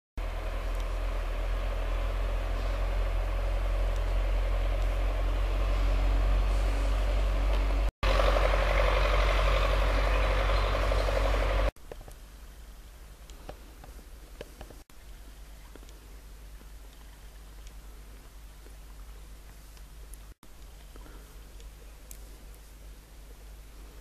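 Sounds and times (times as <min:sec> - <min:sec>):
forest stream running: 0:00.2 - 0:11.7.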